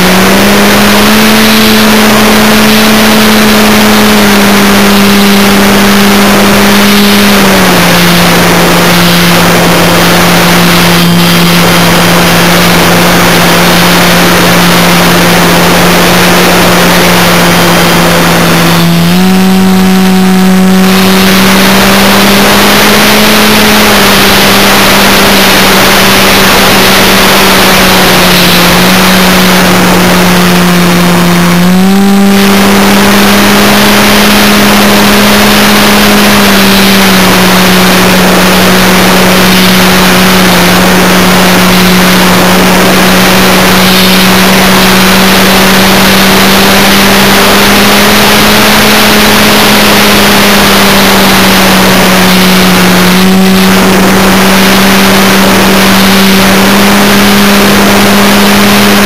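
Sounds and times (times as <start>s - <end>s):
model aircraft motor hum: 0.0s - 59.0s
rush of air: 1.9s - 31.2s.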